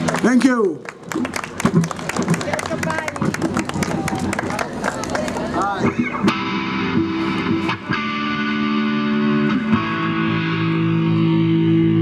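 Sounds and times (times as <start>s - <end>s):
distorted electric guitar chords: 5.8s - 12.0s.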